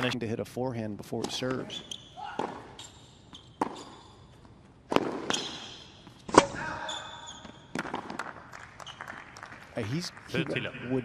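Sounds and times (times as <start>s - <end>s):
shoes squeaking on court: 1.2s - 9.4s
racket hitting ball: 2.3s - 2.8s, 3.6s - 4.0s, 4.8s - 6.6s, 7.7s - 8.4s.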